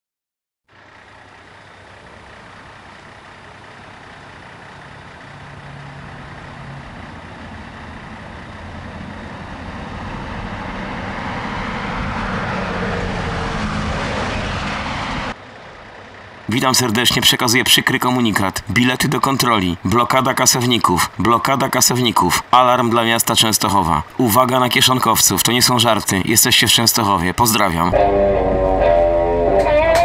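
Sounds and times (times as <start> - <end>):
bus engine and road noise: 0.7 - 30.0.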